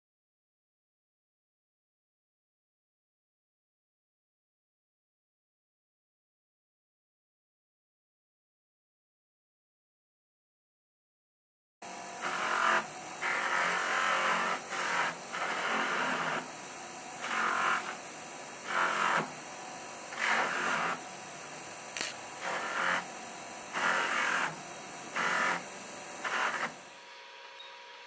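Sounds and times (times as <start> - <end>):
bench buffer motor running: 11.8 - 28.0.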